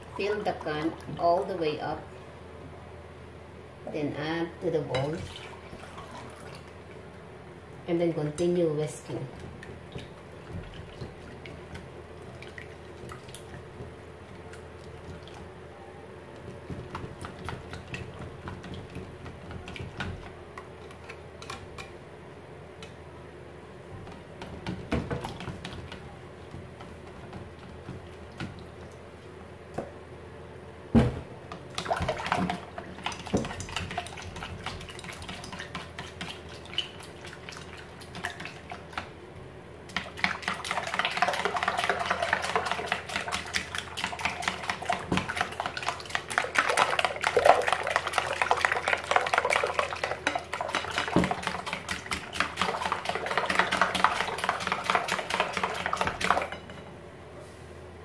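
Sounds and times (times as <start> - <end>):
liquid sloshing: 5.0 - 7.0, 31.7 - 39.1, 39.9 - 56.6.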